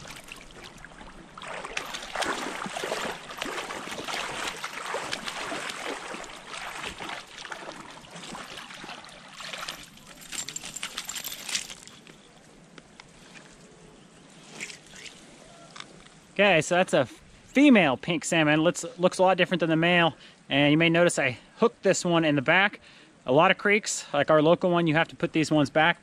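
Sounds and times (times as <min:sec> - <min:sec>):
fish splashing in water: 0:00.0 - 0:10.3.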